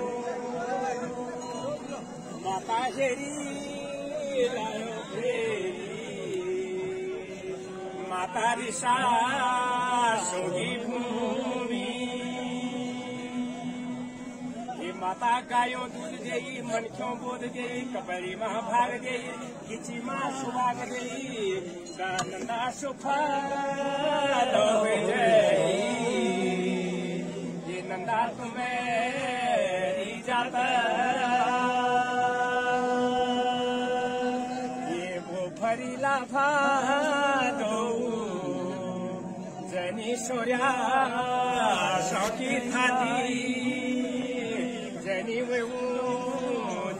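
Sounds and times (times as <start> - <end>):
men singing unaccompanied: 0.0 - 46.9
group of men chanting: 23.0 - 46.9.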